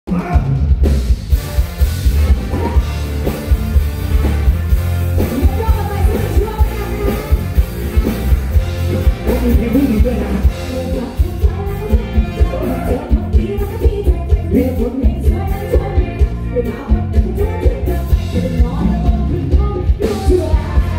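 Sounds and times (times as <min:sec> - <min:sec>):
heavy bass: 0:00.0 - 0:20.9
drum kit beating: 0:00.1 - 0:20.9
electric guitar: 0:01.5 - 0:20.9
person singing: 0:09.2 - 0:20.9.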